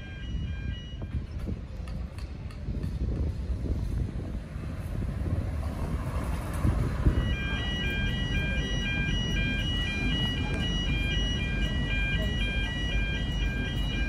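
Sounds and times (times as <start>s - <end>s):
level crossing warning ding: 0.0s - 1.3s, 7.0s - 14.0s.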